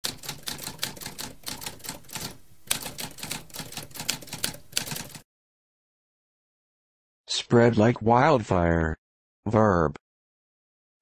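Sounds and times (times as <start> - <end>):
typewriter keys clacking: 0.0 - 5.2.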